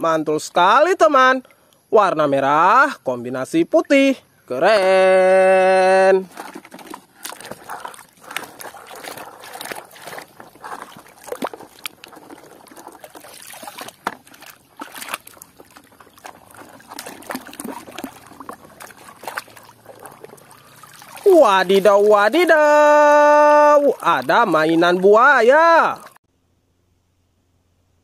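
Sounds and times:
water trickling and splashing: 4.8s - 26.2s.

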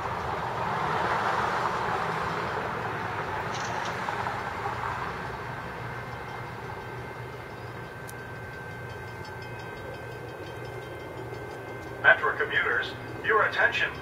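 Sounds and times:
diesel locomotive rumble: 0.0s - 14.0s
road traffic noise: 0.0s - 14.0s
faint steady high tone: 5.6s - 14.0s.

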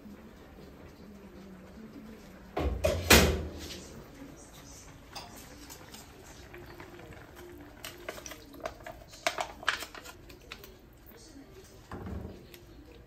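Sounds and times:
carton clicks and crinkles: 7.2s - 10.8s.

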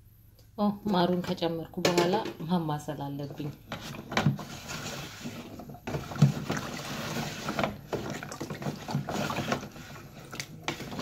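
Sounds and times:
stick stirring liquid in bucket: 3.2s - 11.0s.

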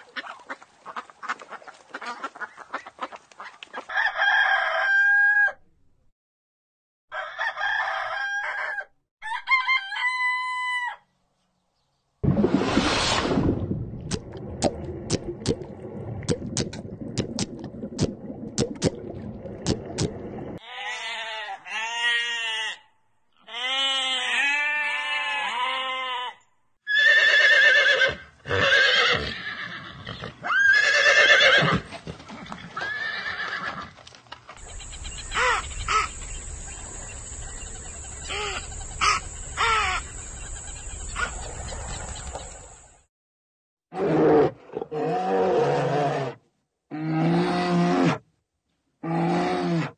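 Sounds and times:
horses whinnying: 26.9s - 34.0s
loud burst of animal call: 34.7s - 36.2s, 38.2s - 40.1s.

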